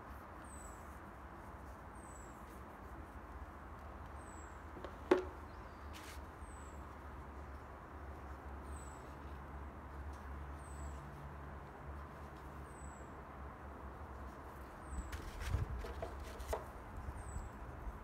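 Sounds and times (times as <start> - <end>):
sharp knock: 4.8 - 5.4.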